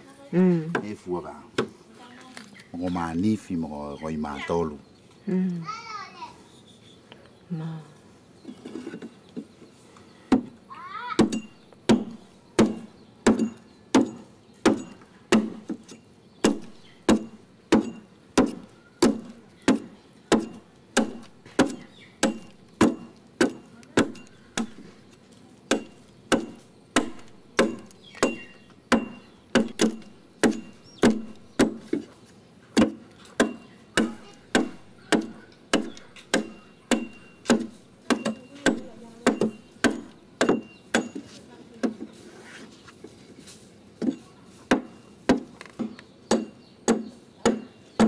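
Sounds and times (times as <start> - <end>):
adze chopping wood: 11.2 - 32.1, 32.7 - 42.1, 44.0 - 48.0.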